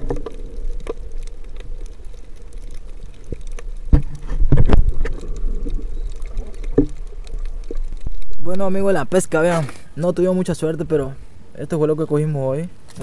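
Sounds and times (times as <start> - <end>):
faint clicks: 0.0 - 8.4
low underwater rumble: 0.0 - 9.3.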